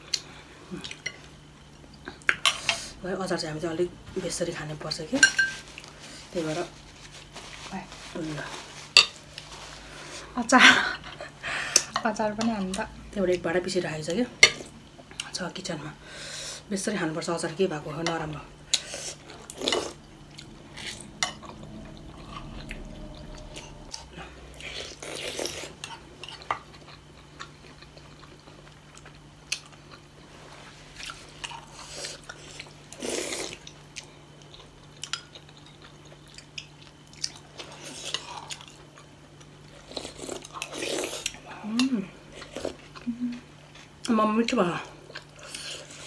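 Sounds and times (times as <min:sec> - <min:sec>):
people chewing: 0:18.1 - 0:46.0
low hum: 0:18.3 - 0:25.1.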